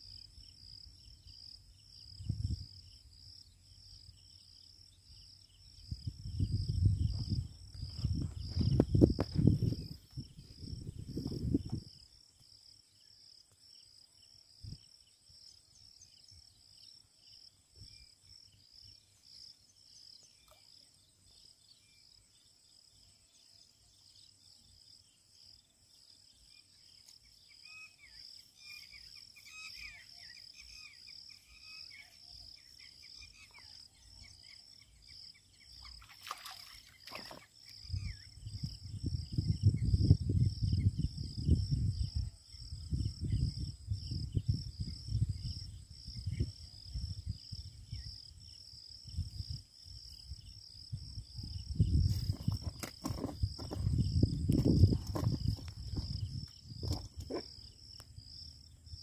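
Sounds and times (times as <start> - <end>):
insects chirping in a trill: 0.0 - 59.0
wind buffeting the microphone: 2.1 - 2.9, 5.7 - 12.0, 37.8 - 57.4
faint bird chirps: 26.3 - 38.7.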